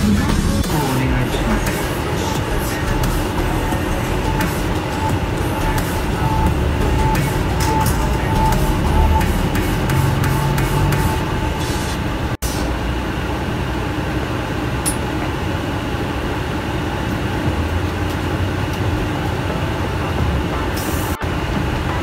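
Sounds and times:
bus engine rumble: 0:00.0 - 0:22.0.

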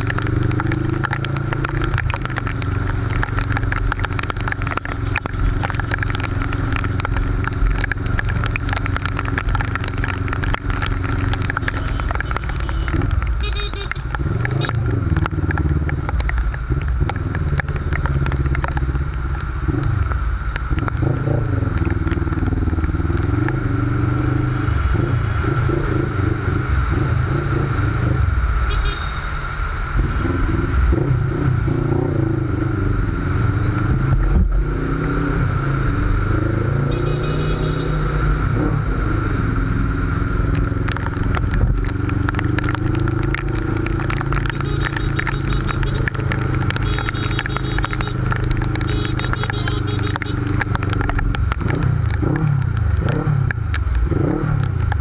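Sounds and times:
motorcycle engine revving: 0:30.0 - 0:55.0.

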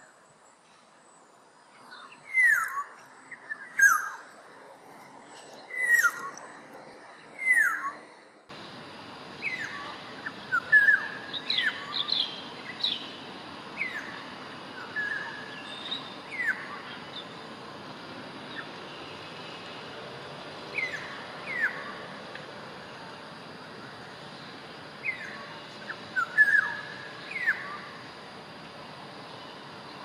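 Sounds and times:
orioles calling: 0:05.4 - 0:30.0
steady hiss: 0:08.5 - 0:30.0.

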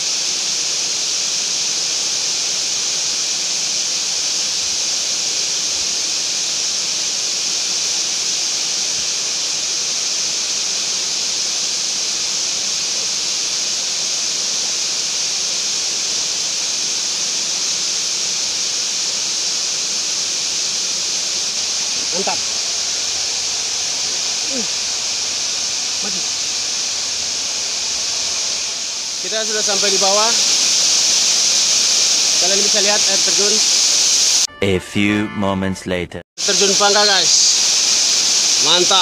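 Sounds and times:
waterfall rushing: 0:20.7 - 0:34.5, 0:36.4 - 0:39.0.

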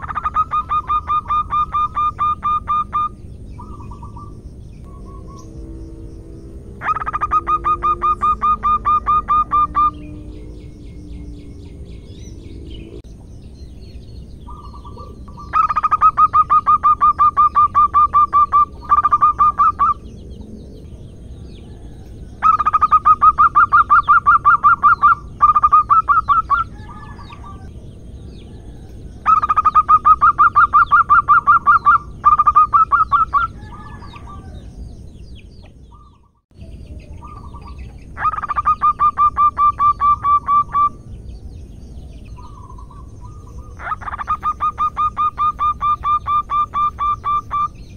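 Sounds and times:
dove cooing in staccato notes: 0:00.0 - 0:04.3, 0:06.8 - 0:10.3, 0:29.2 - 0:34.5, 0:37.3 - 0:40.9, 0:43.6 - 0:47.7.

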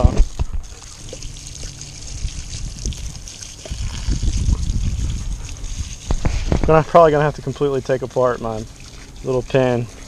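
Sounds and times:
low rumbling on microphone: 0:00.0 - 0:07.6
water spraying from garden hose: 0:00.0 - 0:10.0.

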